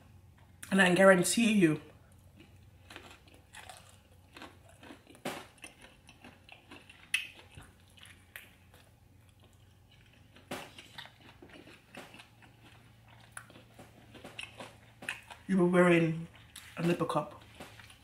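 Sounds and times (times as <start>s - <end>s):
person chewing and biting: 2.0s - 15.5s, 17.4s - 18.0s.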